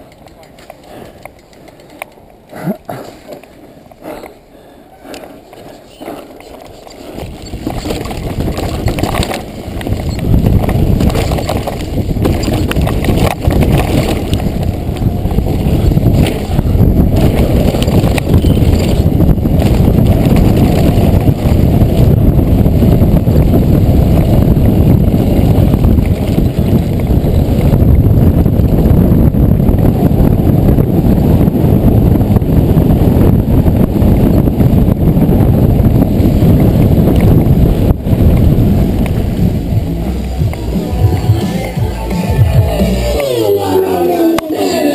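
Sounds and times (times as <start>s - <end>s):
wind rushing over microphone: 5.1s - 44.9s
bike knocks and rattles: 6.1s - 29.1s.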